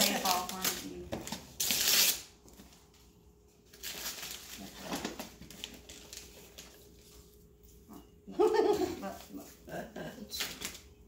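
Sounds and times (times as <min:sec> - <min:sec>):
wrapping paper rustling and crinkling: 0:00.0 - 0:07.8.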